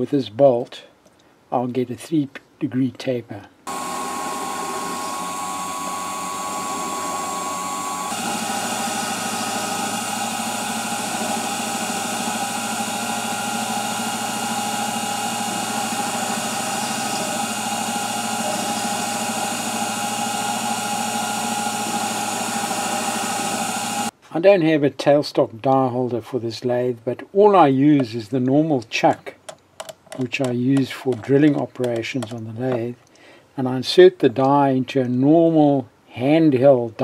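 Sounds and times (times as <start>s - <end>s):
lathe motor whining: 3.7s - 24.1s.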